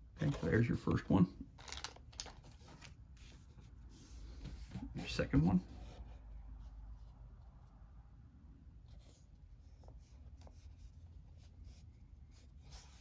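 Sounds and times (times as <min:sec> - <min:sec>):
low room hum: 0:00.0 - 0:13.0
cardboard tiles rustling and tapping: 0:01.5 - 0:03.5.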